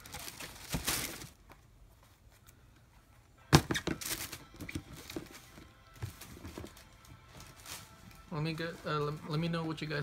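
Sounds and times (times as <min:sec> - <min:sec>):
wrapping paper rustling: 0:00.0 - 0:01.4, 0:06.0 - 0:10.0.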